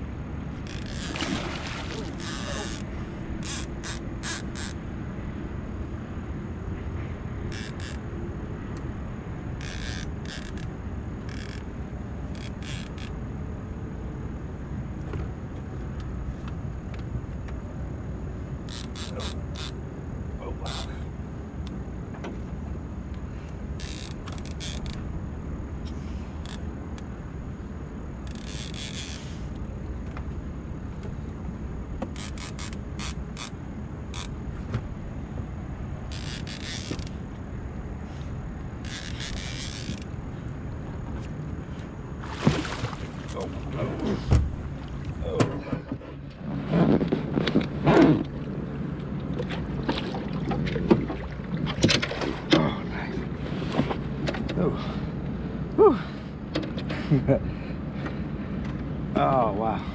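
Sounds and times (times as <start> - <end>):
fishing reel drag buzzing: 0.6 - 4.8, 7.5 - 8.0, 9.6 - 13.2, 18.6 - 19.8, 23.8 - 25.1, 26.2 - 27.1, 28.2 - 29.6, 32.1 - 34.4, 36.1 - 37.2, 38.8 - 40.2.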